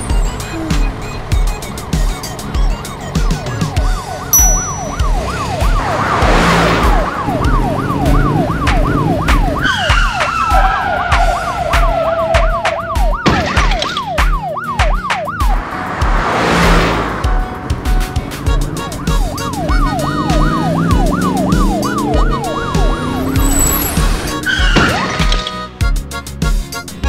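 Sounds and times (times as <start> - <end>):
cartoon police siren yelp: 3.4 - 6.1, 6.9 - 15.6, 18.8 - 25.0
music with thumping beat: 7.0 - 16.2, 25.8 - 26.9.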